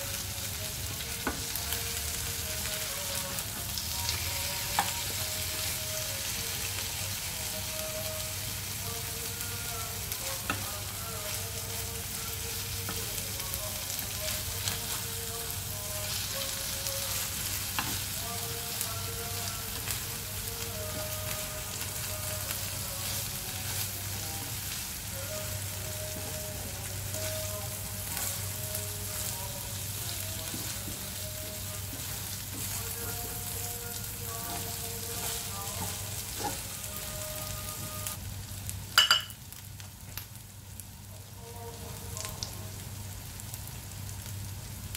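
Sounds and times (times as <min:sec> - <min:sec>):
food sizzling in frying pan: 0:00.0 - 0:44.9
spatula stirring in pan: 0:20.9 - 0:37.9.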